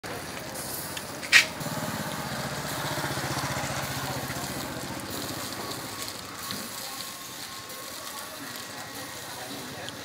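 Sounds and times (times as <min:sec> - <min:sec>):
small motorbike engine running: 0:00.1 - 0:10.0.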